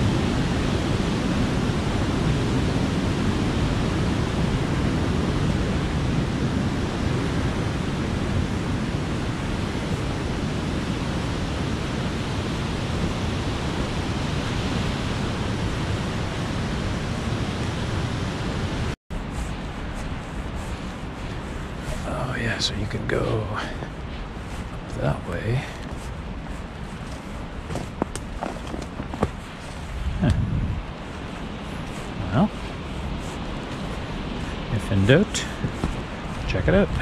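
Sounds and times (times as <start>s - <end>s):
creek water rushing: 10.9s - 30.1s.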